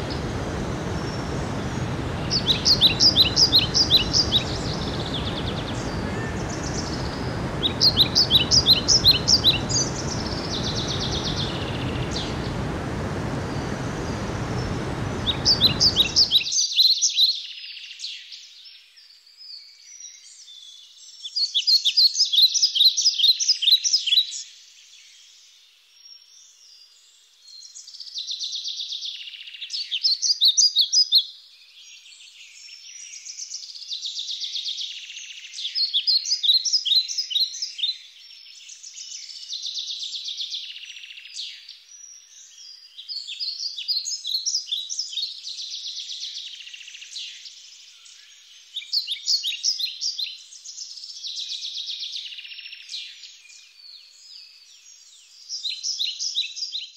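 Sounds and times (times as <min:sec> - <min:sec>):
songbird trilling: 0:00.0 - 0:12.7, 0:13.4 - 0:16.5
water rushing over rocks: 0:00.0 - 0:16.5.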